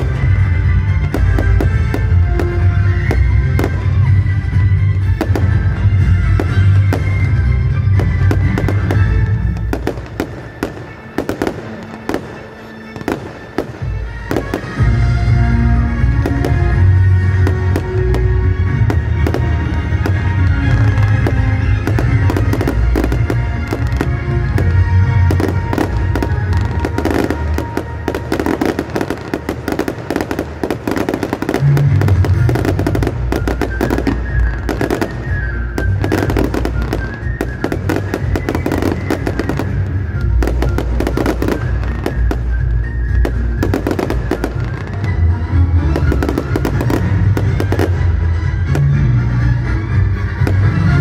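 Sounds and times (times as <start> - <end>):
fireworks bangs and crackles: 0.0 - 51.0.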